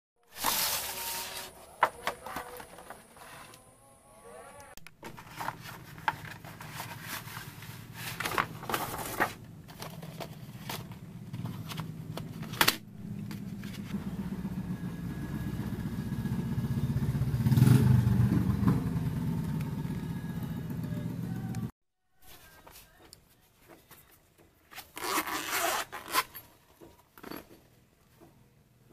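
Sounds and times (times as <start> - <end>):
passing vehicle engine drone: 13.9 - 21.7.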